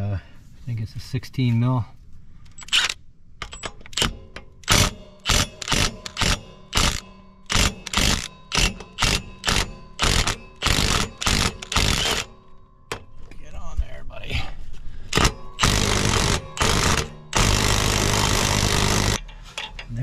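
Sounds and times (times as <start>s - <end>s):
impact wrench bursts: 2.6s - 12.4s, 15.1s - 19.2s.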